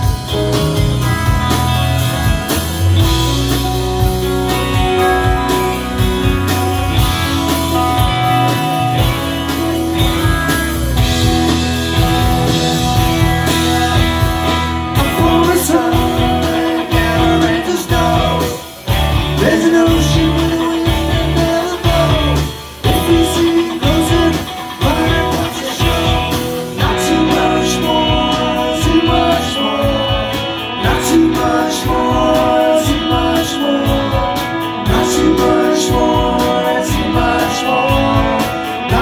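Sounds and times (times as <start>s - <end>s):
rock band playing live: 0.0s - 39.0s
person singing: 14.9s - 39.0s.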